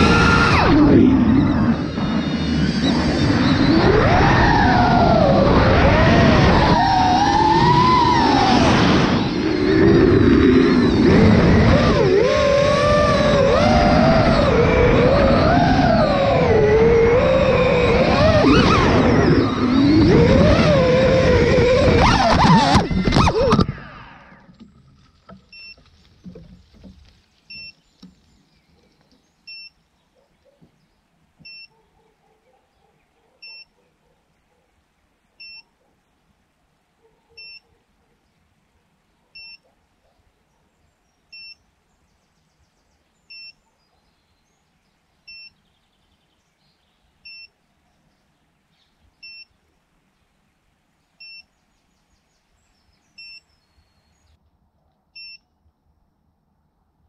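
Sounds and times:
drone propellers whining: 0.0s - 25.7s
short electronic beeps: 25.5s - 25.8s, 27.5s - 27.8s, 29.5s - 29.8s, 31.4s - 31.7s, 33.4s - 33.7s, 35.4s - 35.7s, 37.4s - 37.6s, 39.4s - 39.6s, 41.3s - 41.6s, 43.3s - 43.6s, 45.3s - 45.6s, 47.2s - 47.6s, 49.2s - 49.5s, 51.2s - 51.5s, 53.2s - 54.1s, 55.2s - 55.5s.

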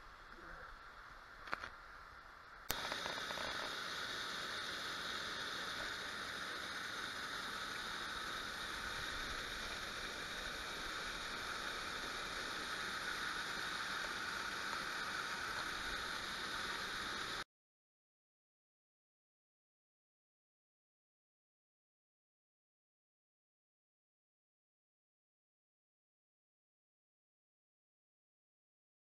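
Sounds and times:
waterfall rushing into pool: 2.7s - 17.4s.

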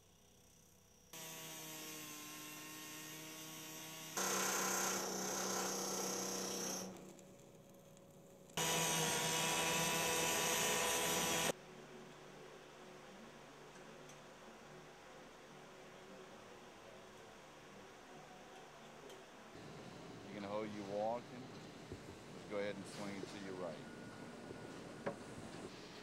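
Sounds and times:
circular saw cutting sheet metal: 1.2s - 7.0s, 8.6s - 11.5s
power tools cutting metal: 1.2s - 7.0s, 8.6s - 11.5s
steady tool whine: 1.2s - 7.1s, 8.6s - 11.6s.

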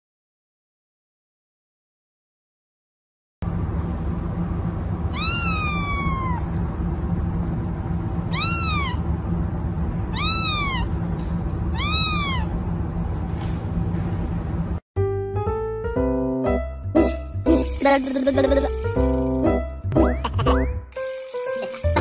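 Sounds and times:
low background hum: 3.4s - 14.8s, 16.9s - 22.0s
kitten meowing: 5.1s - 6.5s, 8.3s - 9.0s, 10.1s - 10.9s, 11.7s - 12.5s.

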